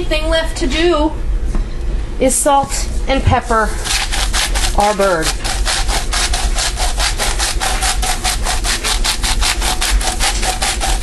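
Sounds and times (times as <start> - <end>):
pepper mill grinding: 3.8 - 11.0.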